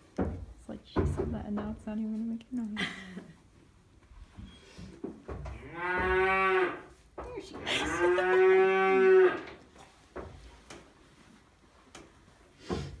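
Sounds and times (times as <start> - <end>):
cow mooing: 5.6 - 6.8, 7.8 - 9.5.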